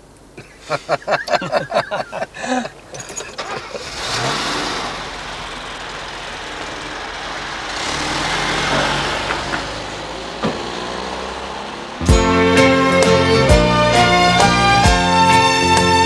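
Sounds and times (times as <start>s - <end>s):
road noise: 0.0s - 16.0s
car engine driving off: 1.8s - 14.5s.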